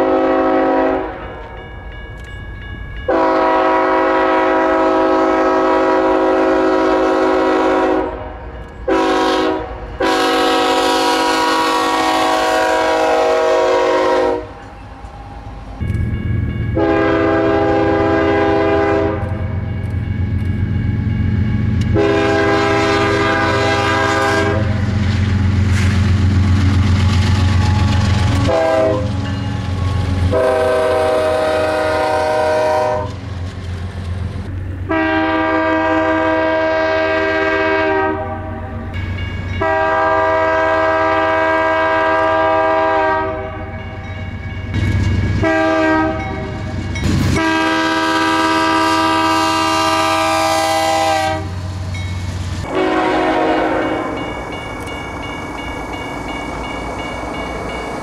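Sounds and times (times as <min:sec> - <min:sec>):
locomotive air horn blasts: 0:00.0 - 0:01.2, 0:03.1 - 0:14.6, 0:16.8 - 0:19.5, 0:21.9 - 0:25.0, 0:27.2 - 0:33.2, 0:34.9 - 0:39.0, 0:39.6 - 0:43.7, 0:45.4 - 0:46.7, 0:47.3 - 0:51.7, 0:52.6 - 0:54.2
train rolling: 0:00.0 - 0:58.0
locomotive engine rumble: 0:09.7 - 0:58.0.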